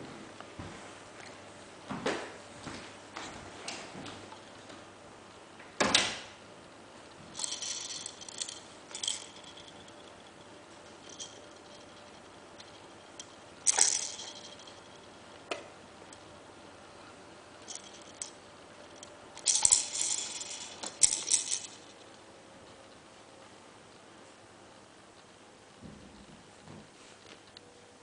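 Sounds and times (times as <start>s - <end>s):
beads rattling in spinner: 7.4s - 15.2s, 17.6s - 22.2s.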